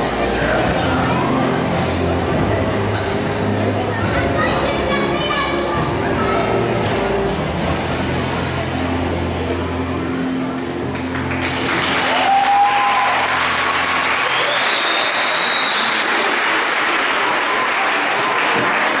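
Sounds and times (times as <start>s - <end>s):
floor-exercise music: 0.0s - 15.6s
audience applauding: 10.9s - 19.0s.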